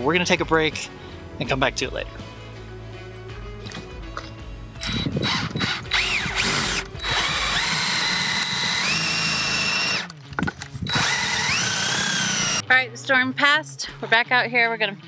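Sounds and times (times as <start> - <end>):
cordless drill boring metal: 4.8 - 10.1, 10.8 - 12.6.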